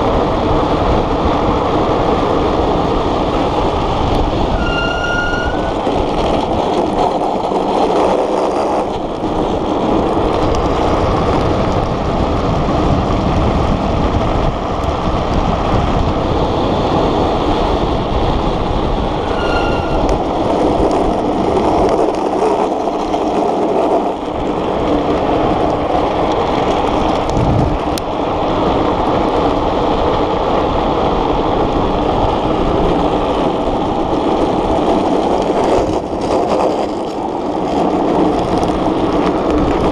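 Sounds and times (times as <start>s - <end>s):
wind rushing: 0.0s - 23.3s, 24.0s - 36.2s
wheels rumbling on asphalt: 0.0s - 39.9s
high squeal of wheels: 4.5s - 6.4s, 19.1s - 20.7s.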